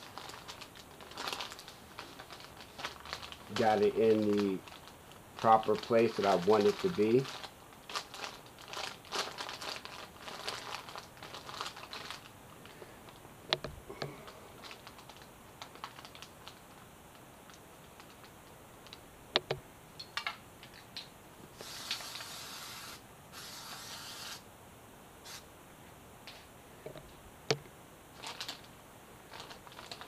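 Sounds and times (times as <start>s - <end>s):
paper crinkling: 0.0s - 13.2s, 14.1s - 16.9s, 28.2s - 30.0s
spray adhesive hissing: 21.6s - 24.4s, 25.2s - 25.5s.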